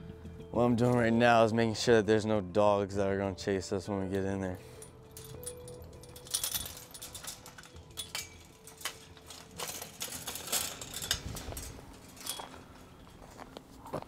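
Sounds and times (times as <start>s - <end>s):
metal gate chain and latch rattling: 4.6s - 13.2s.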